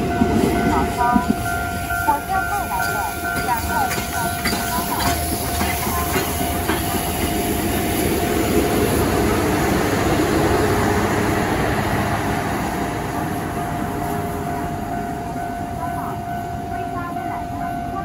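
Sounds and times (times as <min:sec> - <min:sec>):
level crossing warning tone: 0:00.0 - 0:09.2, 0:13.5 - 0:18.0
train wheels rumbling on rails: 0:00.0 - 0:18.0.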